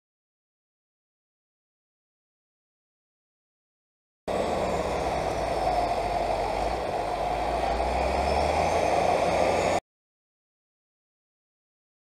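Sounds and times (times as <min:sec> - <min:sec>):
tractor engine droning: 0:04.3 - 0:09.8.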